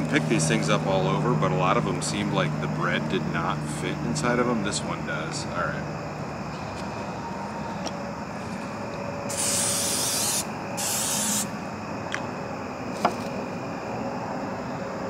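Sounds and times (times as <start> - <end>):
distant traffic hum: 0.0 - 15.0
aerosol spray hissing: 9.3 - 11.5.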